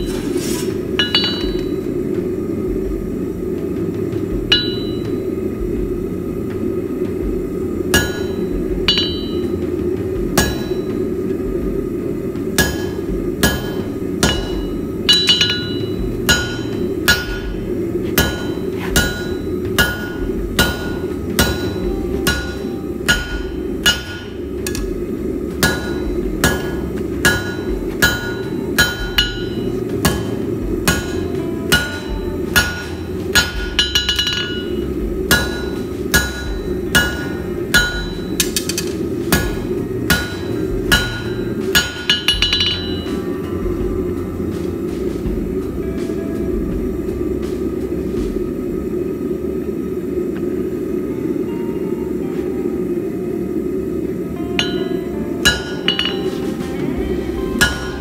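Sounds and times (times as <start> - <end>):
anvil ringing: 0.0 - 2.9, 4.4 - 6.0, 7.9 - 11.8, 12.4 - 43.9, 54.6 - 58.0
hammer striking steel on anvil: 0.0 - 48.6, 54.6 - 58.0
steady rushing noise: 0.0 - 58.0.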